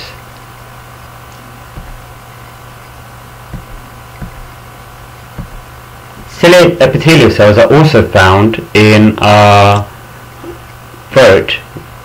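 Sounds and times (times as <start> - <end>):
low hum with hiss: 0.0 - 12.0
soft low thumps: 1.4 - 6.4.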